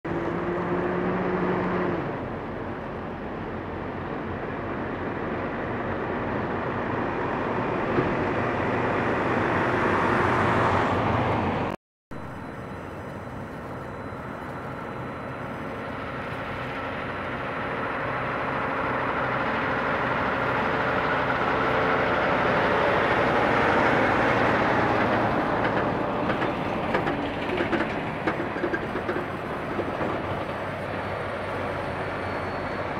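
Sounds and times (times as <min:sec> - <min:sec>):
diesel truck driving past: 0:00.1 - 0:32.9
trailer knocking and rattling: 0:14.5 - 0:32.8.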